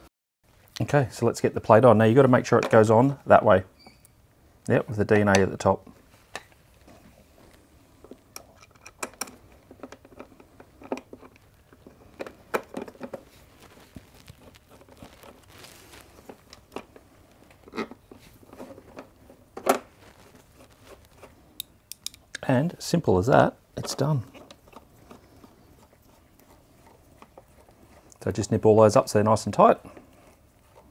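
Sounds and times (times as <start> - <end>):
screwdriver clicks and taps: 21.6 - 22.2.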